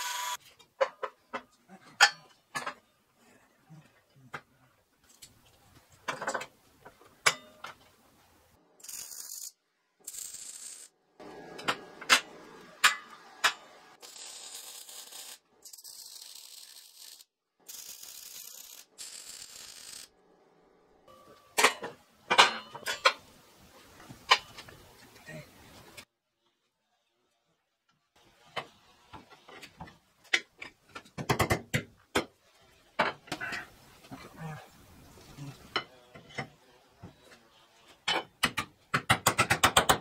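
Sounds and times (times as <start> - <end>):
metal clanks and taps: 6.0 - 7.9
welding crackling hiss: 14.0 - 20.1.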